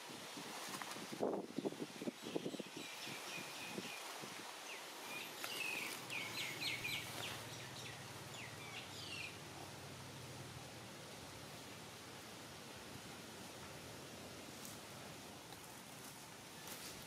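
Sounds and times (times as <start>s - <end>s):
outdoor background hiss: 0.0s - 17.0s
small birds chirping: 1.5s - 10.6s.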